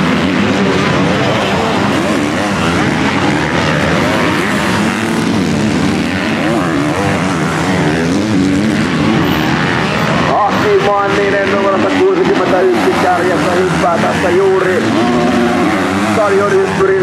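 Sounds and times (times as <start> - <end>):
motocross bike engines revving: 0.0 - 17.0.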